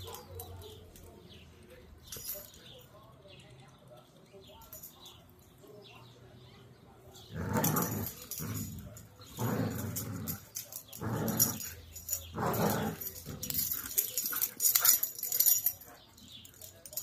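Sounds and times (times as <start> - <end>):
dogs growling in play: 7.2 - 15.2.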